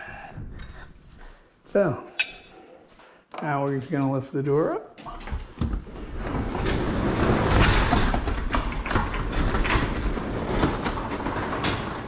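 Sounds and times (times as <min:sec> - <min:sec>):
garage door rollers rumbling: 0:05.1 - 0:12.0.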